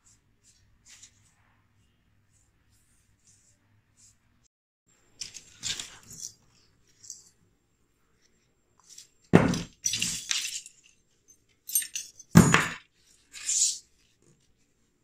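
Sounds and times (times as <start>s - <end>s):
metal scrape: 13.1s - 13.9s.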